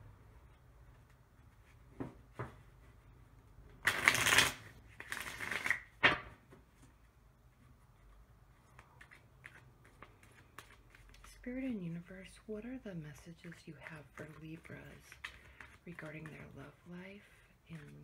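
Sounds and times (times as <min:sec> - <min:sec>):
cards rustling while shuffled: 0:03.8 - 0:06.2, 0:08.5 - 0:12.3, 0:13.1 - 0:18.0
cards tapping: 0:03.8 - 0:06.3.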